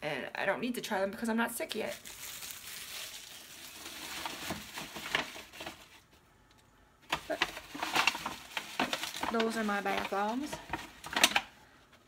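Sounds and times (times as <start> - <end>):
plastic wrapping rustling: 1.6 - 6.2, 7.1 - 11.5.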